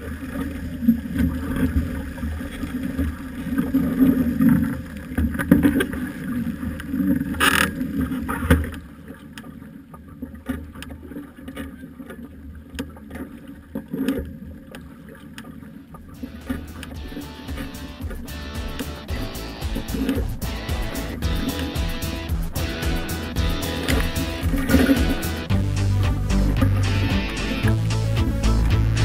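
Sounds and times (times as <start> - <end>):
water sloshing and splashing: 0.0 - 18.8.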